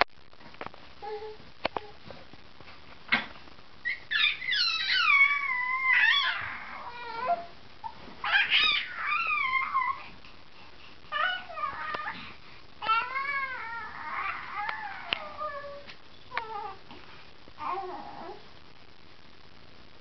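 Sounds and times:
baby cooing and squealing: 3.9s - 7.5s, 8.2s - 10.1s, 12.8s - 15.8s.

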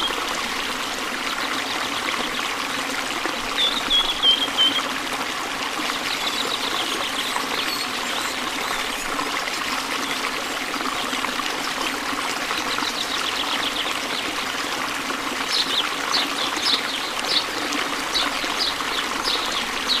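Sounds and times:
river water trickling: 0.0s - 20.0s.

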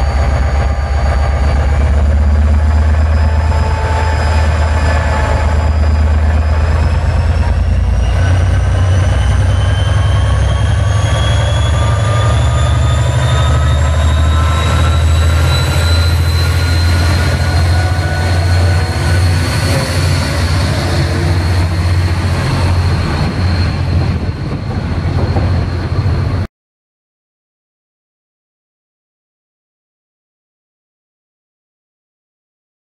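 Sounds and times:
diesel locomotives rumbling: 0.0s - 26.5s
thin rising whine: 0.0s - 26.5s.

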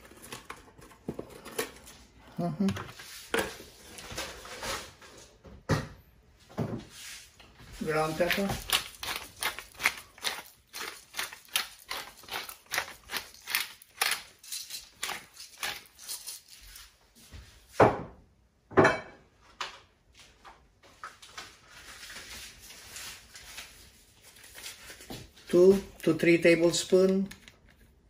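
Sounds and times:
pepper mill grinding: 7.8s - 16.9s.

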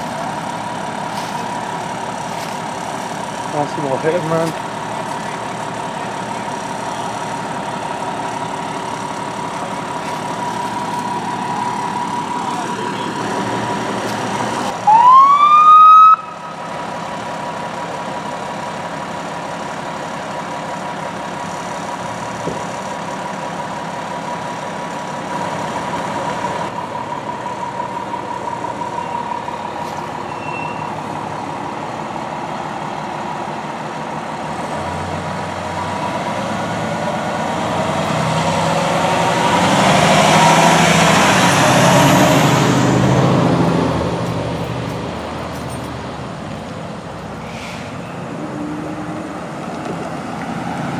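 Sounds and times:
idling engines rumble: 0.0s - 50.9s
emergency siren whoop: 14.8s - 16.6s.

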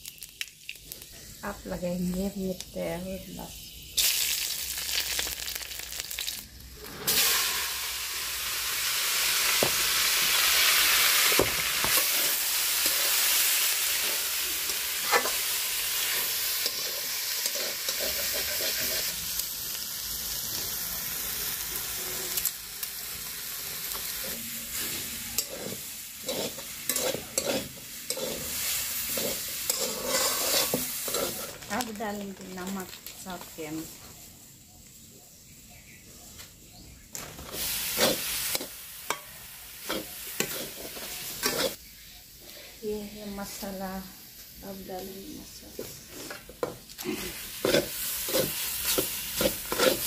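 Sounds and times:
food sizzling in hot oil: 0.0s - 34.2s, 37.1s - 50.0s
metal spatula scraping a pan: 11.8s - 19.2s, 24.0s - 31.6s, 37.5s - 41.8s, 45.7s - 50.0s.

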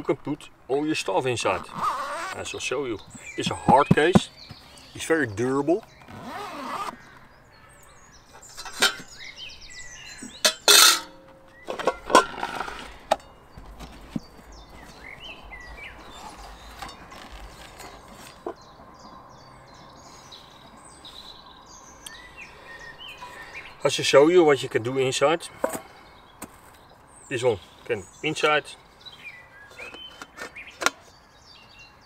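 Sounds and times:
pans knocking and clinking: 10.4s - 11.2s
handling rustle: 10.5s - 18.6s.

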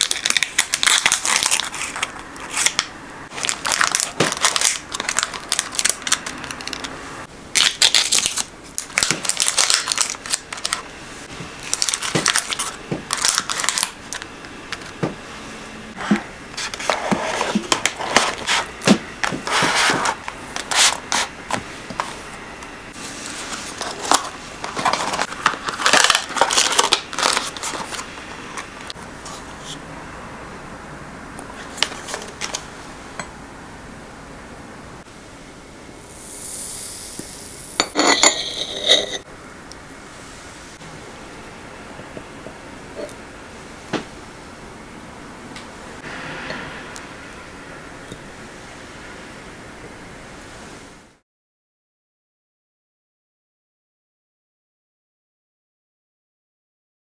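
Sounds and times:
paper and cardboard rustling: 0.0s - 6.9s, 11.6s - 13.9s, 16.0s - 22.2s, 23.0s - 29.8s
box scraping into paper sleeve: 16.0s - 18.7s, 19.4s - 21.3s.

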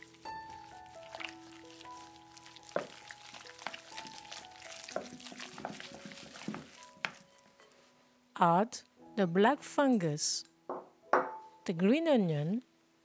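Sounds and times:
chopsticks mixing wet minced meat: 0.0s - 7.5s
soft background music: 0.0s - 13.0s.

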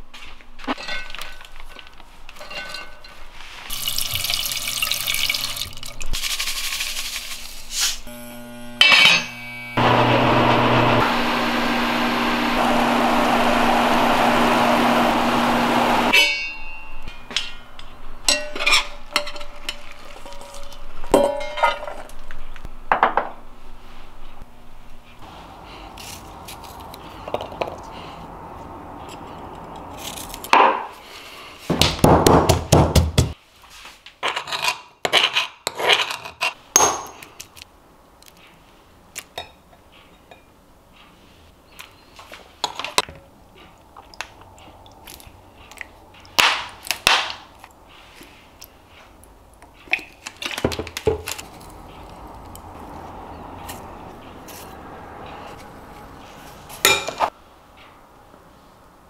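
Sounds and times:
metal spoon clinking glass bowl: 18.3s - 22.0s
heavy pounding in stone mortar: 31.7s - 33.4s.

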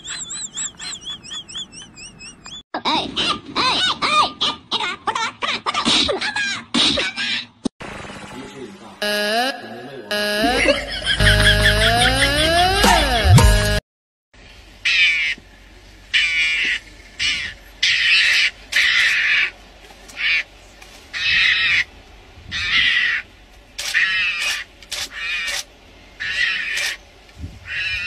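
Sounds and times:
mongoose high-pitched calls: 0.0s - 2.6s, 26.2s - 27.0s.

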